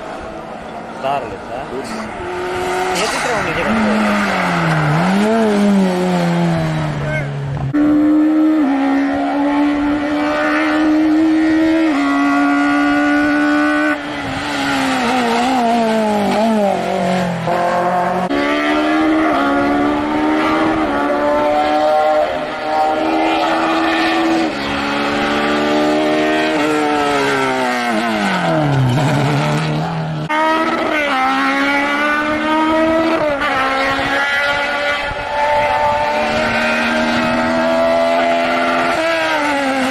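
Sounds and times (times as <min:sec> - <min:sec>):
racing car engines revving: 0:00.0 - 0:39.9.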